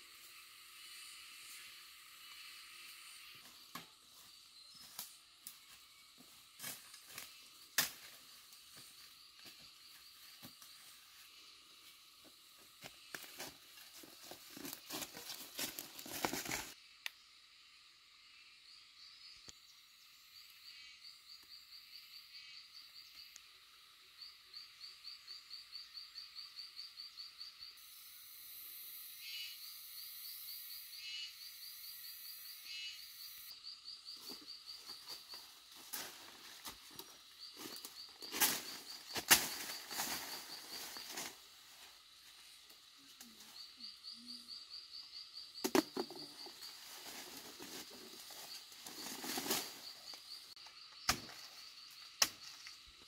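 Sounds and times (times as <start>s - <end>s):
steady high hiss: 0.0s - 9.2s
dry leaves crackling underfoot: 13.0s - 16.8s, 34.8s - 41.7s, 46.5s - 50.3s.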